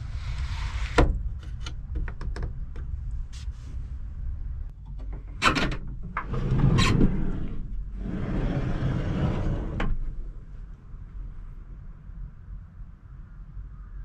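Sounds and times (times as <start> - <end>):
rustling noise: 0.0 - 1.6, 3.0 - 4.6.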